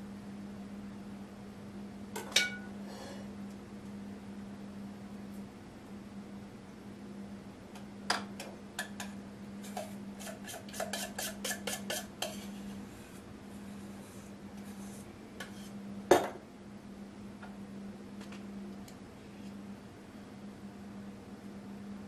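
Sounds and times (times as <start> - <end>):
utensil scraping glass bowl: 9.7 - 12.8.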